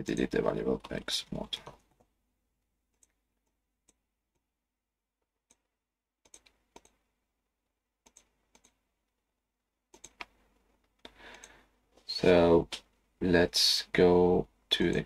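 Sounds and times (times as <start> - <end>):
mouse and keyboard clicks: 5.5 - 7.0, 9.9 - 10.4.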